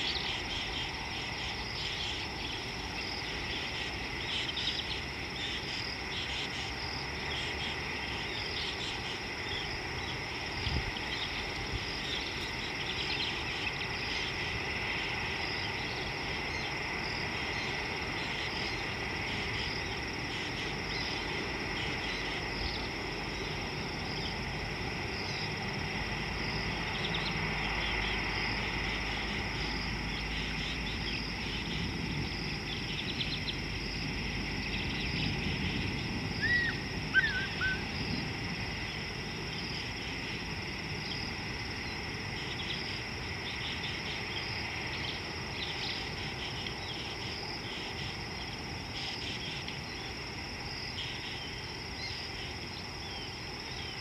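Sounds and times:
insects trilling: 0.0 - 54.0
bird call: 36.4 - 38.0.

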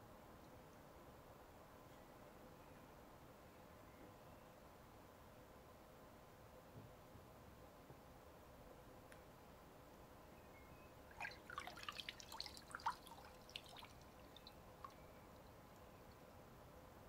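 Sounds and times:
underwater water splashes: 11.1 - 14.5
quick water plinks: 11.1 - 16.2.

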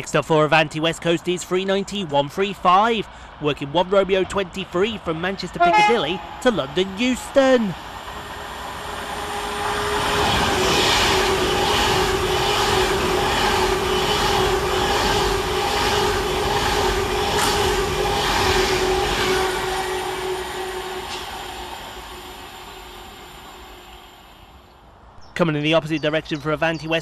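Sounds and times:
wheels rumbling on rail: 4.2 - 25.2
electric train whine: 5.6 - 25.1.

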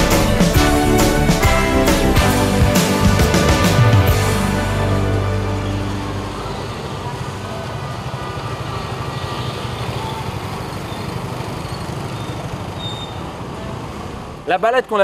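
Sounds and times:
motor scooters passing: 5.0 - 14.5.

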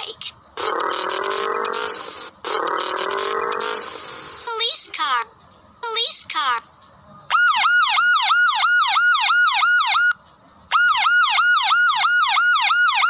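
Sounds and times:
police siren yelp: 7.3 - 13.0.

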